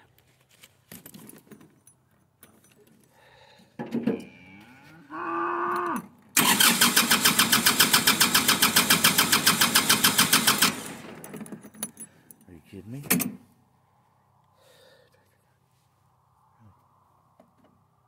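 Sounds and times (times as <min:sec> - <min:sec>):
cow mooing: 0:04.2 - 0:06.1
tractor engine cranking: 0:06.4 - 0:12.0.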